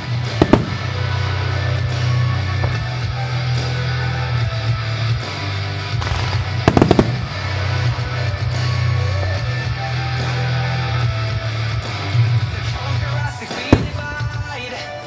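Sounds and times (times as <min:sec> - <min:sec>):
music with heavy bass: 0:00.0 - 0:15.0
firework bangs: 0:00.2 - 0:03.1, 0:05.9 - 0:07.9, 0:13.3 - 0:15.0.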